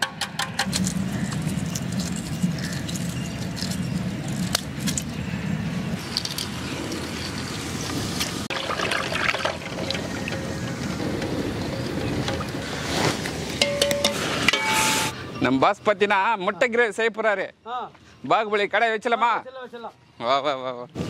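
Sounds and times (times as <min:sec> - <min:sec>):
eggshells crackling while peeled: 0:00.6 - 0:05.2.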